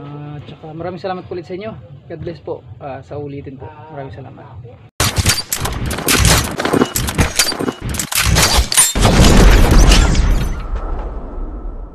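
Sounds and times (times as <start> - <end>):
gunshots and impacts: 5.0 - 11.9
heavy rumbling boom: 9.0 - 11.9.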